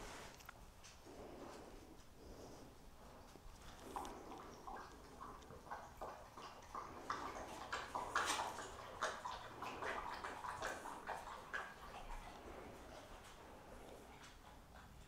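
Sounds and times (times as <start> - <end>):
dog lapping water: 3.1 - 15.0.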